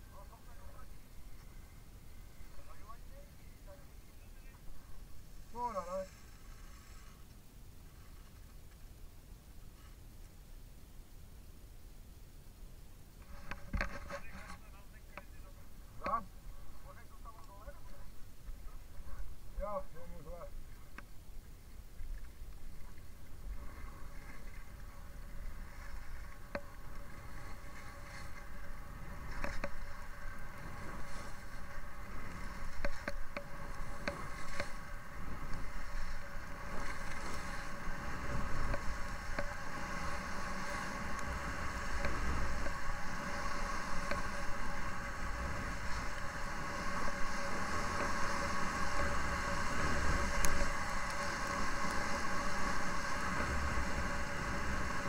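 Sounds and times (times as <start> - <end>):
skis running on snow: 23.6 - 55.0.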